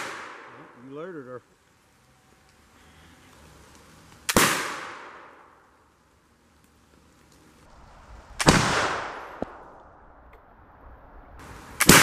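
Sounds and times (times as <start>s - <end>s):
rifle shots: 4.3s - 5.3s, 8.3s - 10.1s.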